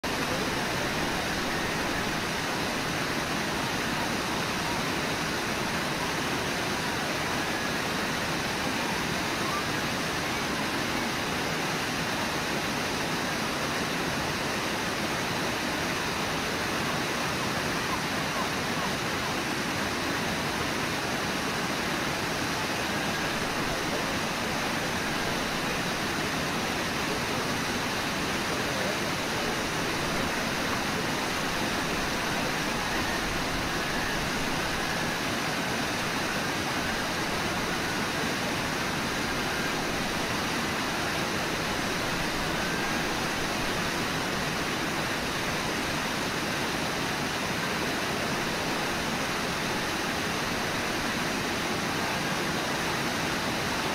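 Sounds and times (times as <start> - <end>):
waterfall rushing: 0.0 - 53.9
whitewater rapids churning: 0.0 - 53.9.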